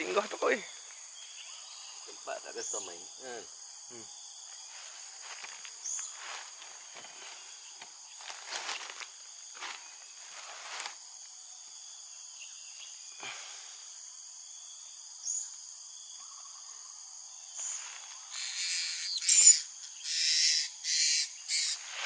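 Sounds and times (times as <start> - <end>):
insects shrilling: 17.5 - 22.0.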